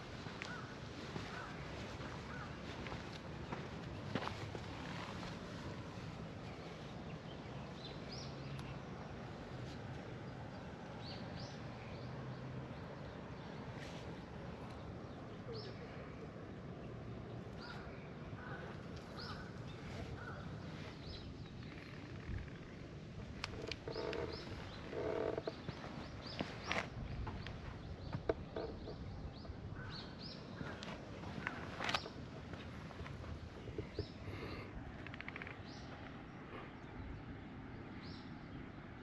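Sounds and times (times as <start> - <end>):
birds chirping: 0.0 - 39.0
lower bird calls: 17.6 - 37.1.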